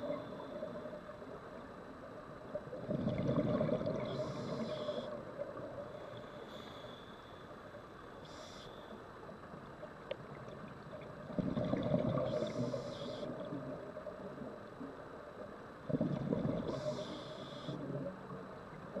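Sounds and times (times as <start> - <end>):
steady underwater hiss: 0.0 - 19.0
exhaled bubbles underwater: 2.4 - 5.8, 10.3 - 14.6, 15.8 - 19.0.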